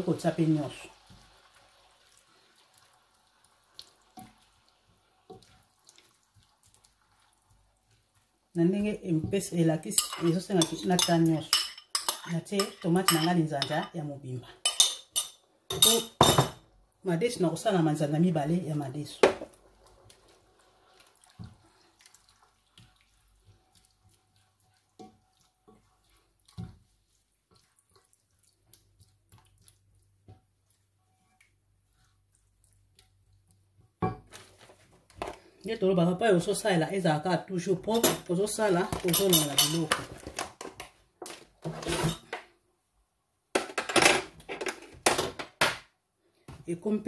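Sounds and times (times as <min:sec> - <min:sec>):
wet squelches of stirring meat: 0:00.0 - 0:16.0, 0:16.7 - 0:41.8
dishes clinking and knocking: 0:14.7 - 0:16.6, 0:43.5 - 0:45.8.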